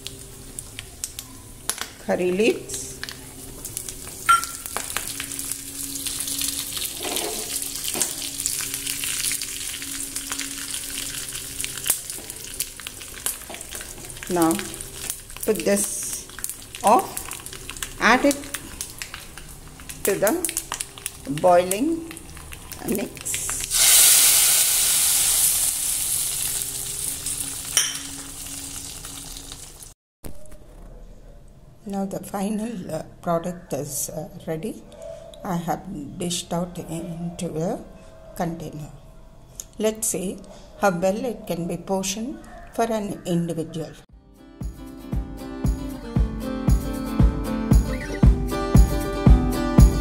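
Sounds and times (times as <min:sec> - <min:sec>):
spices sizzling in hot oil: 0:02.6 - 0:29.9.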